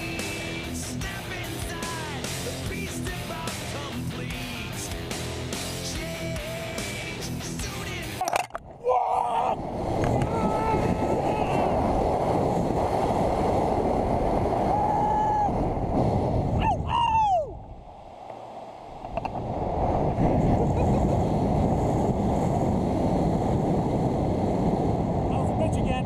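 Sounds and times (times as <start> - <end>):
wind rushing over microphone: 0.0 - 26.0
person yelling: 8.8 - 9.6, 10.2 - 11.8, 14.7 - 15.5, 16.6 - 17.6.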